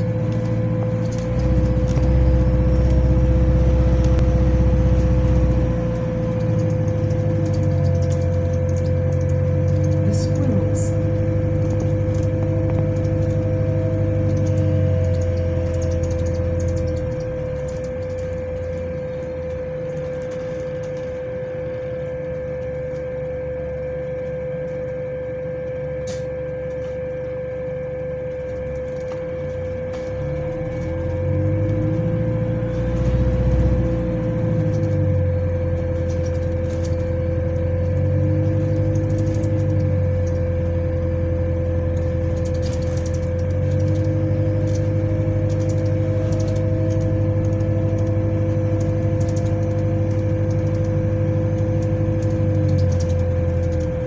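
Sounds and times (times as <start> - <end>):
bus engine drone: 0.0 - 54.0
fan whining: 0.0 - 54.0.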